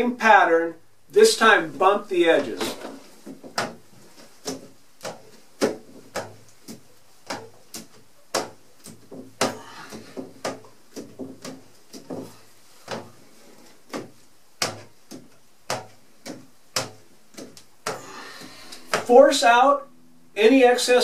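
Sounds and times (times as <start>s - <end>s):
squeegee knocking on window frame: 13.9s - 18.1s.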